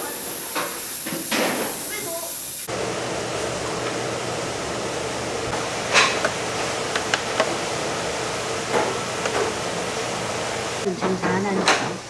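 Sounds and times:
restaurant hum: 0.0 - 12.0
dishes and utensils clinking: 5.9 - 6.3.

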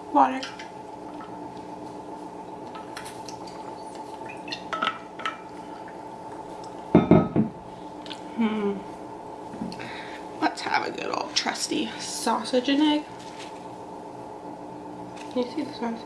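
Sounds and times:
bottle thumping on table: 7.0 - 7.6.

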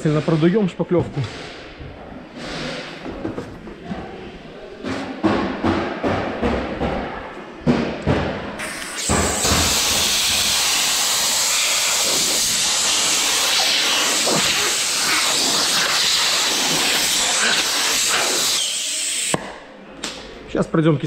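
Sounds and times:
compressed-air blow gun hissing: 8.6 - 19.4.

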